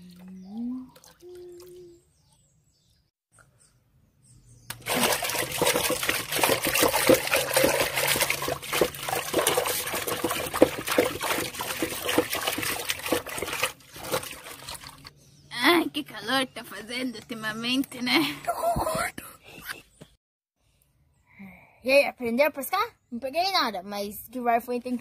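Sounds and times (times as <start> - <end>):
water splashing hard: 4.7 - 15.1.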